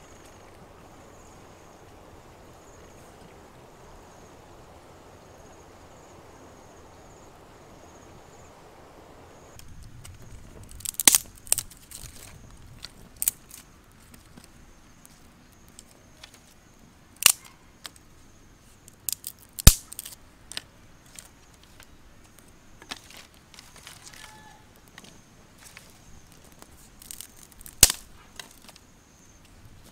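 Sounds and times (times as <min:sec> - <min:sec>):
high insect drone: 0:00.0 - 0:12.6
dry twigs snapping: 0:09.6 - 0:16.5, 0:17.2 - 0:18.1, 0:18.9 - 0:28.9.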